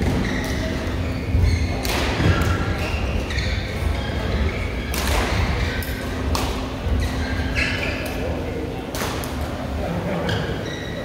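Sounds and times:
shoe squeaks: 0.0s - 6.0s, 6.9s - 8.3s, 10.2s - 11.0s
low hum in echoing hall: 0.0s - 11.0s
racket hitting shuttlecock: 1.8s - 2.6s, 4.8s - 6.7s.

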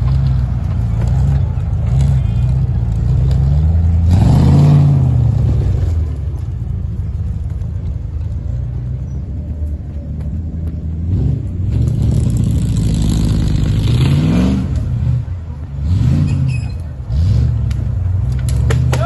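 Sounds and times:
engine revving hard: 11.1s - 15.2s.

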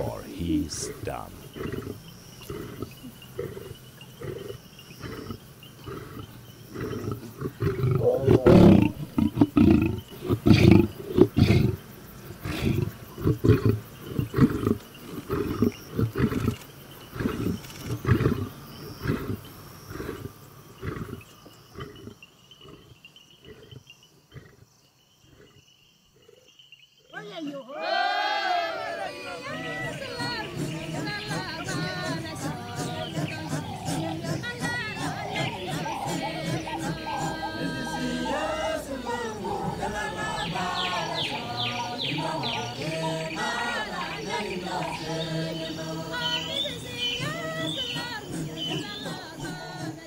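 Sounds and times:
lion roaring: 0.0s - 11.8s.

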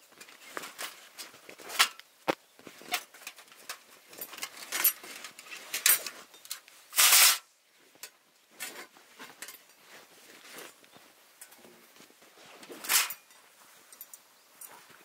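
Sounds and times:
small clicks and knocks of gear: 0.0s - 6.8s, 8.0s - 15.0s.

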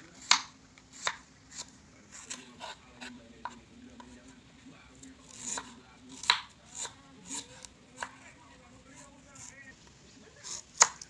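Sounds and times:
knife cutting on wooden board: 0.2s - 4.1s, 5.2s - 8.2s, 10.4s - 11.0s.

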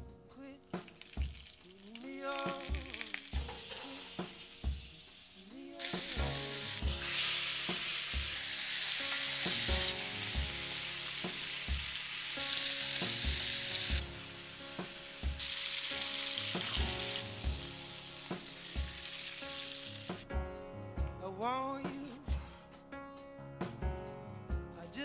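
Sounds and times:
steaks sizzling in pan: 0.7s - 20.3s
music with bass beat: 6.0s - 7.0s, 9.5s - 10.6s.

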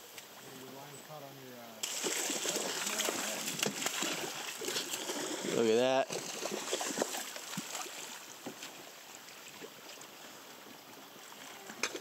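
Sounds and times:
faint knocks and splashes: 1.8s - 10.1s
river water rushing: 1.8s - 11.7s.

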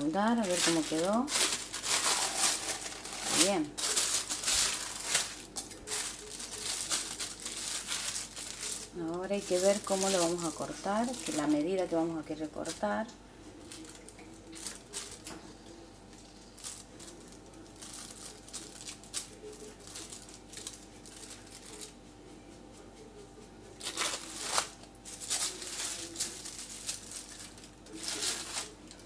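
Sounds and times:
plastic sheeting crinkling: 0.0s - 12.9s, 13.6s - 15.5s, 16.3s - 22.0s, 23.8s - 29.0s.

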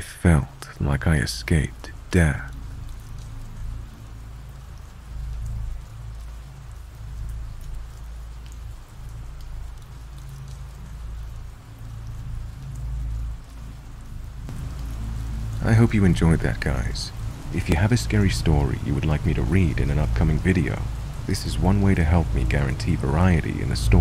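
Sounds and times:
steady rainfall: 0.0s - 24.0s
low rumble: 10.8s - 24.0s.

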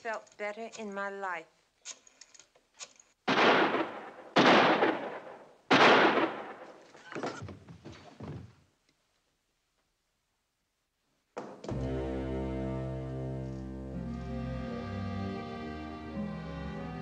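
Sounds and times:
gunshots: 3.2s - 7.4s.

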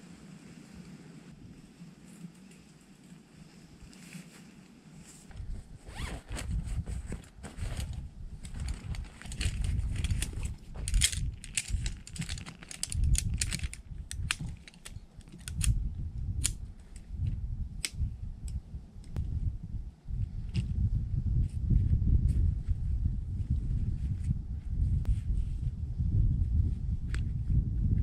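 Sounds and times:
low rumble: 6.6s - 28.0s.

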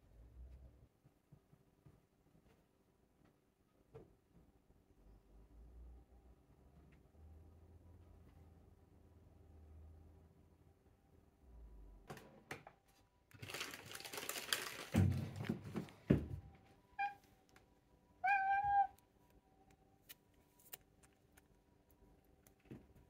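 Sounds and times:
cat meowing: 17.0s - 17.2s, 18.2s - 19.0s.

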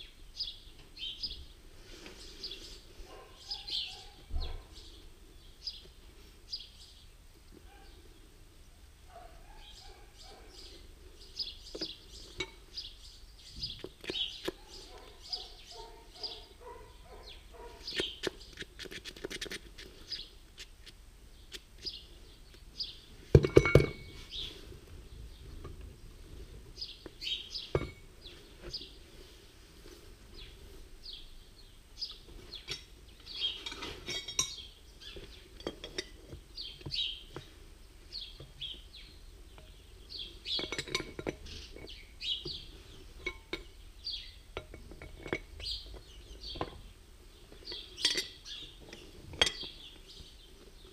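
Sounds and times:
birds chirping: 0.0s - 18.8s, 19.4s - 29.4s, 30.3s - 50.9s
metal clinks and knocks: 11.8s - 12.7s, 23.3s - 24.3s, 27.6s - 28.8s, 32.5s - 37.5s, 40.5s - 43.8s, 44.4s - 46.9s, 47.5s - 50.0s.

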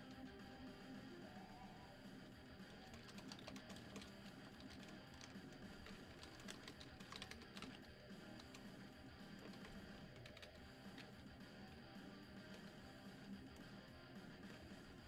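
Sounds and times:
quiet background music: 0.0s - 15.0s
typing on computer keyboard: 2.7s - 8.7s, 9.3s - 11.1s.

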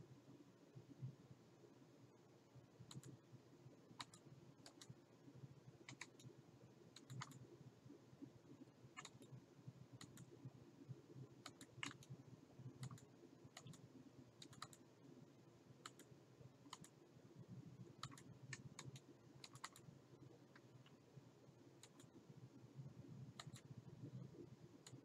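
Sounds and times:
low steady hum: 0.0s - 25.0s
keyboard and mouse clicks: 2.9s - 3.2s, 4.0s - 5.0s, 5.8s - 6.3s, 6.9s - 7.4s, 9.0s - 9.3s, 10.0s - 10.3s, 11.4s - 12.2s, 12.8s - 14.8s, 15.8s - 16.1s, 16.7s - 17.0s, 18.0s - 19.9s, 21.8s - 22.2s, 23.4s - 23.7s, 24.8s - 25.0s.

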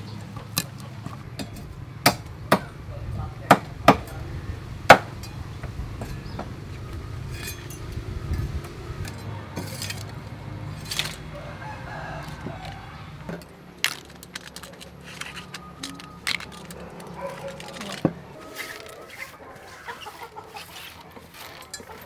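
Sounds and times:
chickens clucking: 0.0s - 1.8s, 14.5s - 22.0s
crab pieces clinking in metal colander: 13.8s - 18.0s.

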